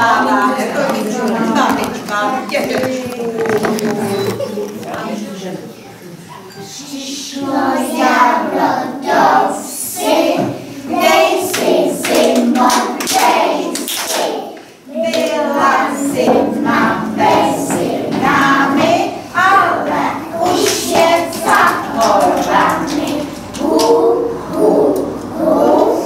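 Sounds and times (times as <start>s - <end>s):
children singing: 6.6s - 26.0s.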